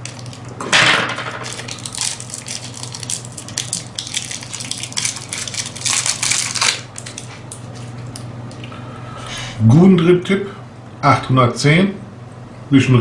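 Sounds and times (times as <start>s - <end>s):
plastic packaging crinkling: 0.0s - 0.6s, 1.2s - 7.9s.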